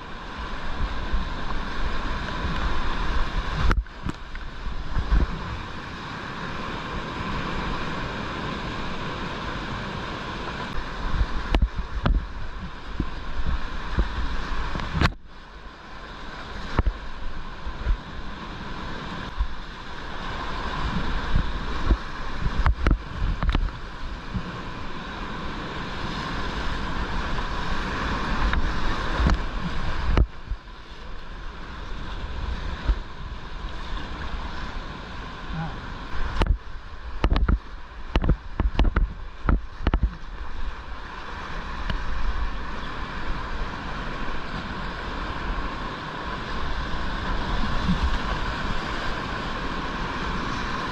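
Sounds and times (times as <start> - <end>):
whitewater rapids rushing: 0.0 - 50.9
water splashing against camera: 10.7 - 15.3, 20.8 - 24.6, 28.2 - 30.7, 35.5 - 41.2.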